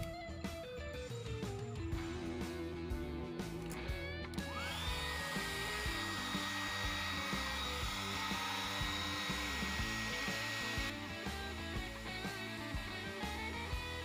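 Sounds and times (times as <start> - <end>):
background music: 0.0 - 14.0
hair dryer whine and blowing: 4.4 - 14.0.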